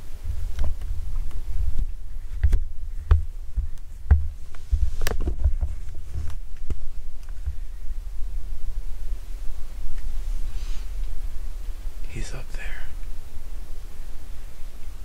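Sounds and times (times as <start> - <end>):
camera handling rumble: 3.6 - 7.6
camera brushing fabric: 4.6 - 6.4, 10.0 - 11.0.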